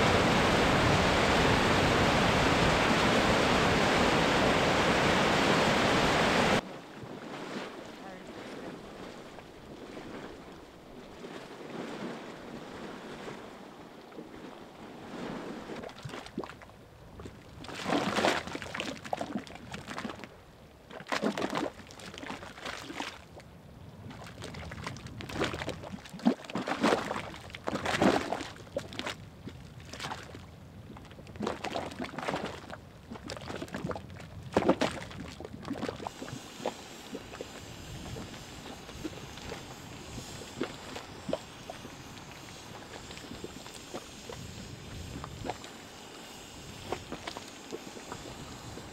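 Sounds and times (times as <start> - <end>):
mud bubbling and plopping: 15.7 - 23.4, 24.0 - 48.9.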